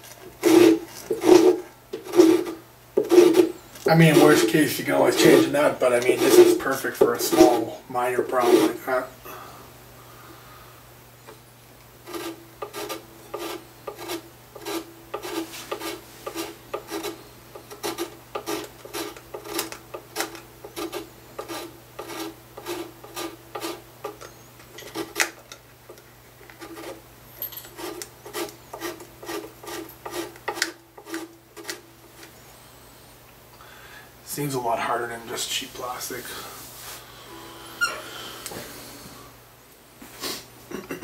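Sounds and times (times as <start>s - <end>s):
file rasping in guitar nut slot: 0.4s - 3.5s, 12.1s - 24.2s.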